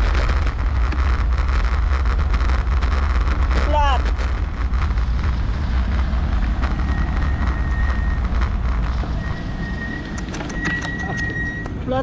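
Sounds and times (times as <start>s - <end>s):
road rumble: 0.0s - 12.0s
wind buffeting microphone: 0.0s - 12.0s
thin high whine: 6.5s - 11.7s.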